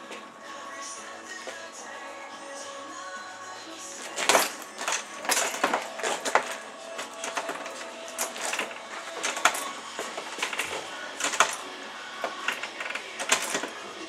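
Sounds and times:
chain clinking and creaking: 4.0s - 14.0s.

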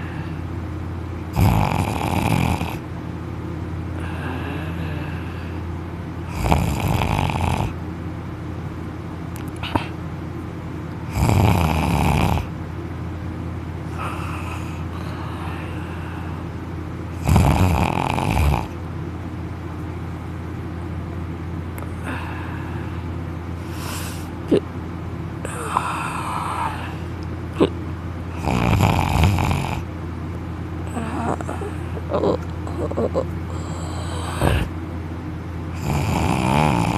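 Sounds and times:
man snoring loudly: 1.3s - 2.8s, 6.3s - 7.8s, 11.1s - 12.5s, 17.2s - 18.7s, 28.3s - 29.9s, 35.7s - 36.9s
soft breathing snores: 1.3s - 2.8s, 4.0s - 5.6s, 6.2s - 7.8s, 11.1s - 12.5s, 13.9s - 16.5s, 17.2s - 18.8s, 25.4s - 27.7s, 28.3s - 29.9s, 30.9s - 32.4s, 33.5s - 34.8s, 35.7s - 36.9s.

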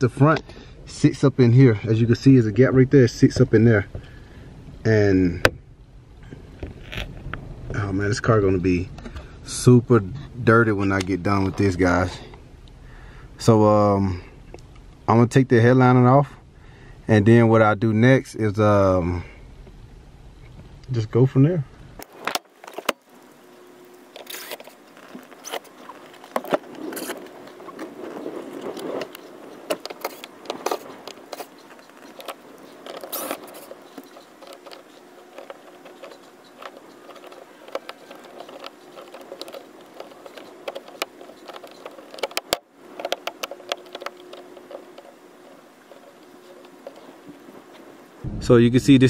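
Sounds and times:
plastic lens clicking and scraping: 6.5s - 7.4s, 22.0s - 47.9s.

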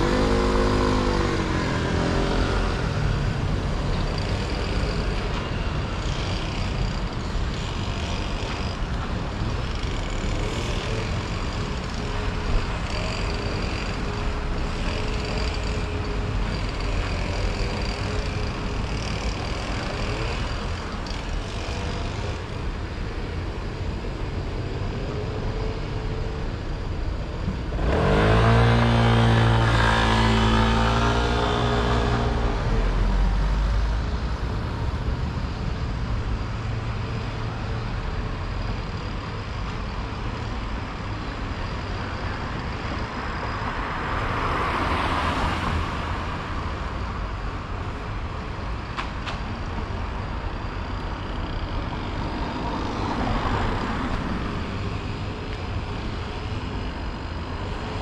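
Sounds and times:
traffic rumble: 0.0s - 58.0s
vehicles passing: 0.0s - 58.0s
engine revving pulling away: 27.8s - 32.7s.

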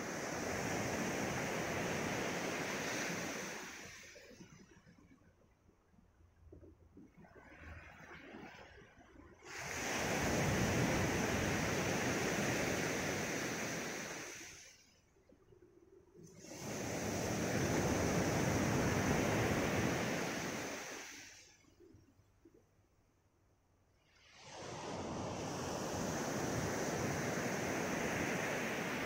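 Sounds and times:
waves washing up gravel shore: 9.5s - 14.6s, 16.4s - 21.5s.

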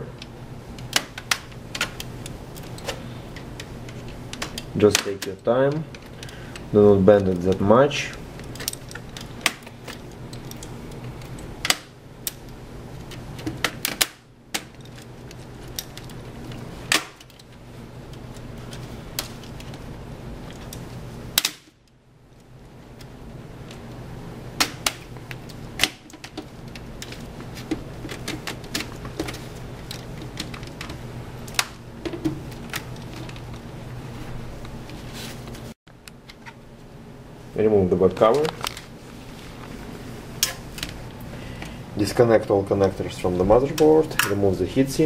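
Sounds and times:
plastic clips snapping loose: 21.4s - 21.8s.

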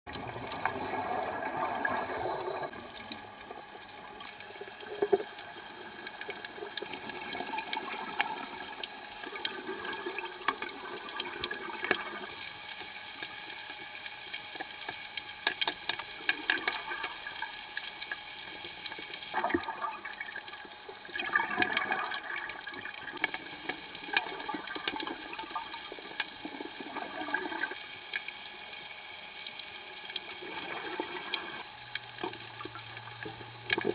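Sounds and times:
exhaled air bubbling underwater: 0.1s - 12.6s, 16.2s - 27.8s
crackle of fine clicks: 0.1s - 33.9s.

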